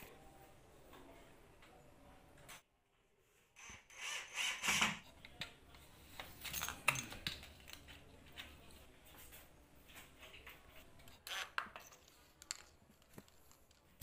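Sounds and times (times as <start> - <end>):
small objects clicking and knocking: 11.1 - 14.0.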